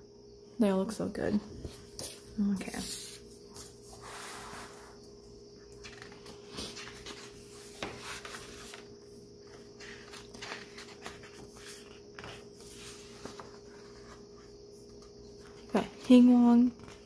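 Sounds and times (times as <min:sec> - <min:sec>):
faint steady hum: 0:00.0 - 0:17.0
paper pages rustling: 0:05.8 - 0:15.7.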